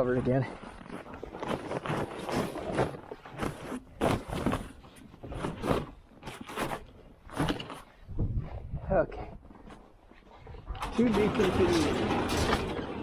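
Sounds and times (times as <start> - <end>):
footsteps in snow: 0.0 - 8.0
fabric cover rustling and scraping: 0.6 - 8.6.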